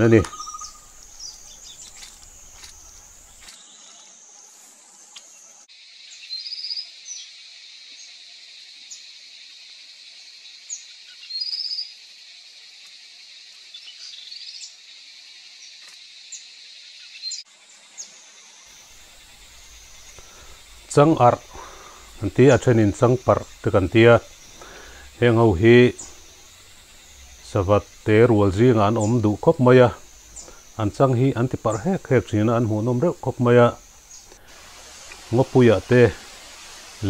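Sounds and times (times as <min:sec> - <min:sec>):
bird trilled calls: 0:00.0 - 0:03.1
bird chirps: 0:00.0 - 0:03.5, 0:06.1 - 0:08.2, 0:10.6 - 0:12.0
insect drone: 0:00.0 - 0:37.0.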